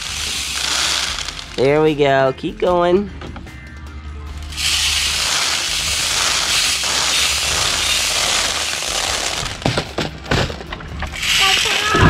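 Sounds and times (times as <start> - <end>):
water beads pattering on plastic: 0.0 - 1.6, 4.6 - 9.6.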